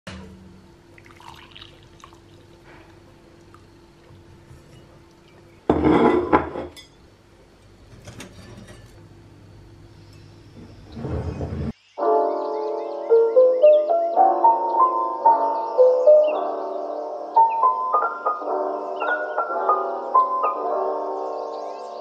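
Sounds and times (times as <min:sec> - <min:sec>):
drink pouring into a mug: 0:00.9 - 0:05.3
crockery clinking: 0:04.5 - 0:09.0.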